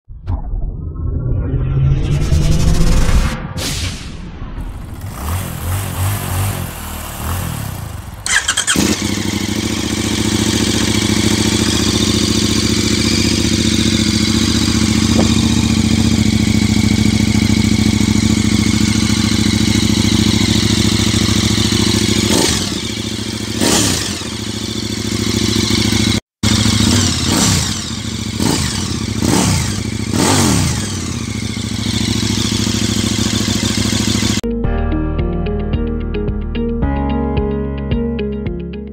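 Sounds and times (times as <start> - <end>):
motorcycle engine idling and revving: 4.7 - 34.4.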